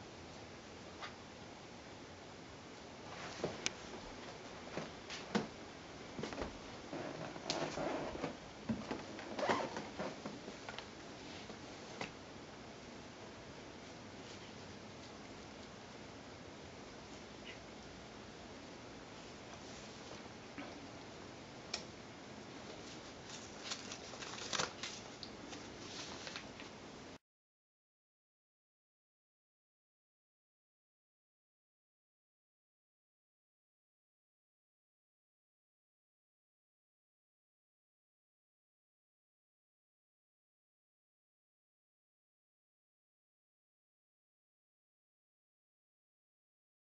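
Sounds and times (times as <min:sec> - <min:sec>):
faint steady hiss: 0:00.0 - 0:27.2.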